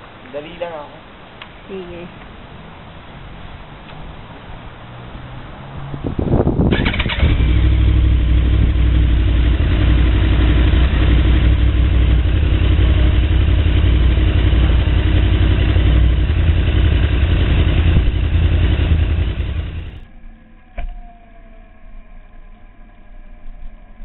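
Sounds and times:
motorcycle engine idling: 6.7s - 21.6s.

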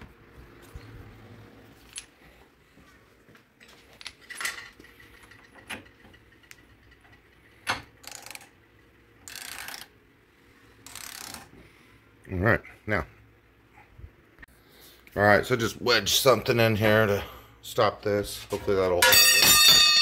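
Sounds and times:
wrench ratcheting: 8.0s - 8.5s, 9.2s - 9.9s, 10.8s - 11.5s.

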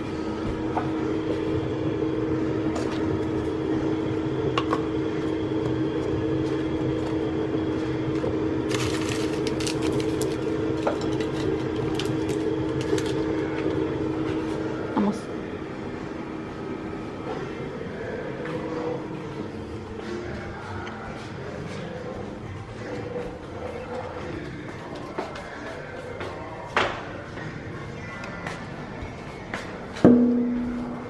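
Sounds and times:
machine hum: 0.0s - 31.0s
paper cup and packets crinkling: 8.7s - 13.6s.

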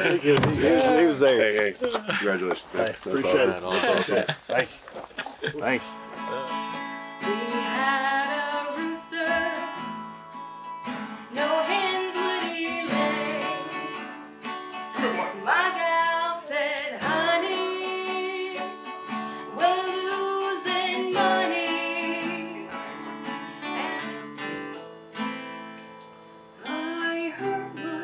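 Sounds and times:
strummed acoustic guitar: 5.7s - 28.0s
woman singing: 7.2s - 10.0s, 11.3s - 24.7s, 26.6s - 28.0s.

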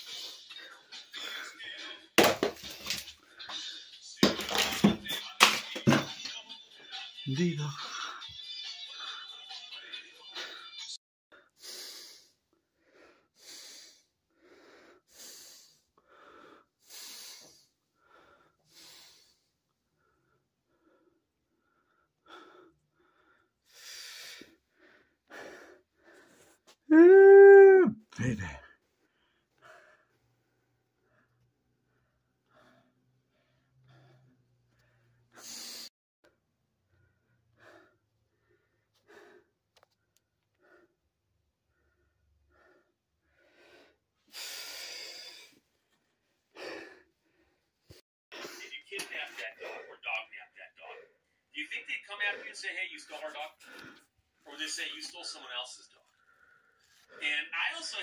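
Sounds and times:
person breathing heavily: 11.4s - 26.7s, 28.8s - 35.9s, 36.9s - 39.9s, 41.6s - 48.7s.

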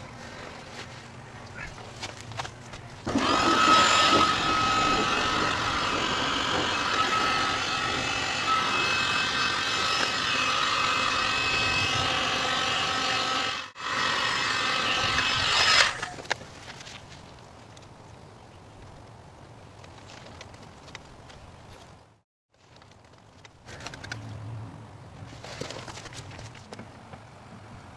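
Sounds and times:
electric power tool whining: 3.0s - 16.3s.

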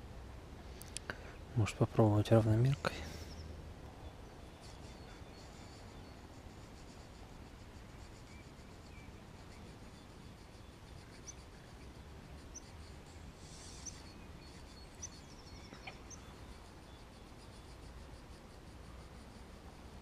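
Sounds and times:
birds chirping: 1.0s - 6.4s, 8.2s - 17.8s.

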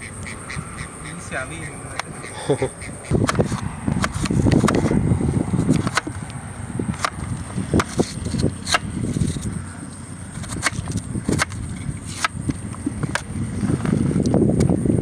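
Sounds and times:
knife chopping on a metal tray: 7.8s - 8.9s, 10.4s - 12.4s.

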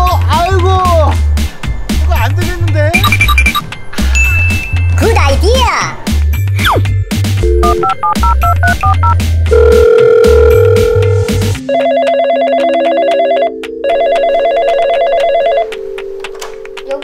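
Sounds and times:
background music with heavy beat: 0.0s - 11.6s.

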